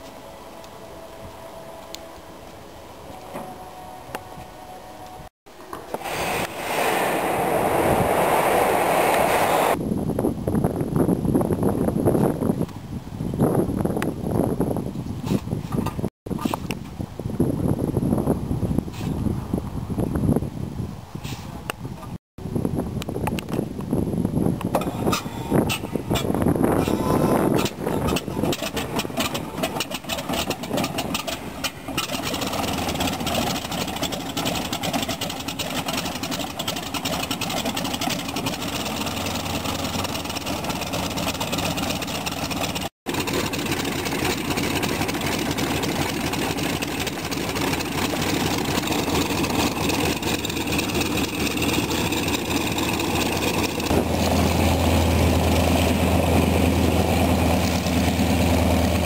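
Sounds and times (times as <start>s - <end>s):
second radial engine humming: 24.6s - 59.0s
radial engine starting and idling: 24.7s - 59.0s.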